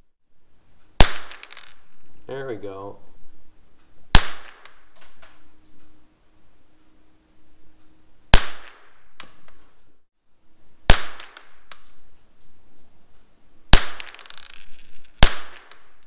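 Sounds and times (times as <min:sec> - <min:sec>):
rifle shots with echo: 0:01.0 - 0:01.6, 0:04.1 - 0:04.8, 0:08.3 - 0:09.0, 0:10.9 - 0:11.6, 0:13.7 - 0:14.5, 0:15.2 - 0:15.8.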